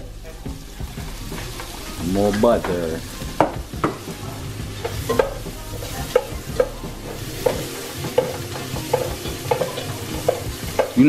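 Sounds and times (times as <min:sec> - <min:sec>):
food sizzling in butter: 0:00.0 - 0:11.0
spatula clinking against pot: 0:04.8 - 0:11.0.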